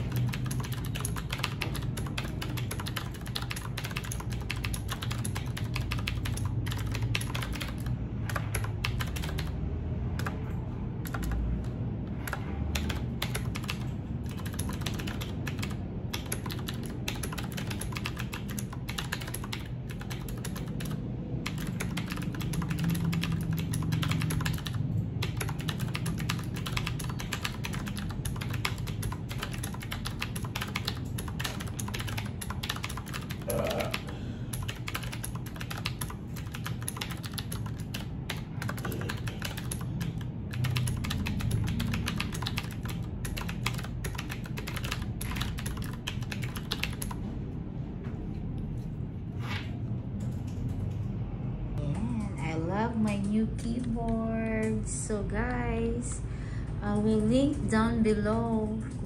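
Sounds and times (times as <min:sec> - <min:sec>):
mechanical keyboard typing: 0:00.0 - 0:47.2.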